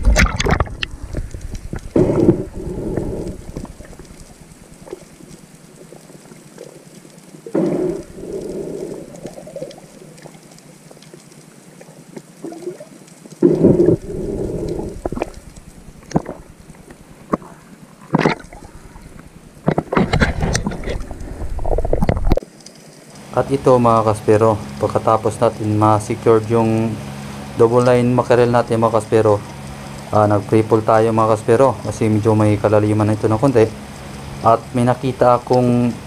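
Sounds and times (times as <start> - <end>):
muffled underwater surges: 0.0 - 6.8, 7.4 - 11.0, 12.4 - 22.4
underwater crackle of ticks: 0.0 - 36.0.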